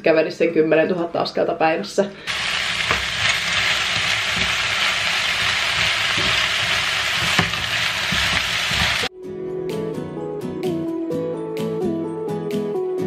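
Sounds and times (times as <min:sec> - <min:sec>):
food sizzling in a frying pan: 0:02.3 - 0:09.1.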